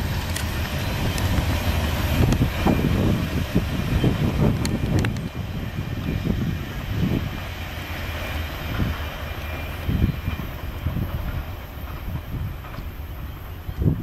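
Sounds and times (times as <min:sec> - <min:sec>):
train wheels rumbling on rails: 0:00.0 - 0:14.0.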